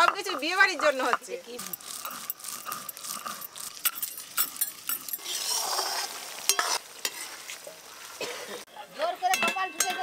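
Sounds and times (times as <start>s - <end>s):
metal spoon stirring in wok: 0.0s - 7.6s
onions sizzling in oil: 0.0s - 8.8s.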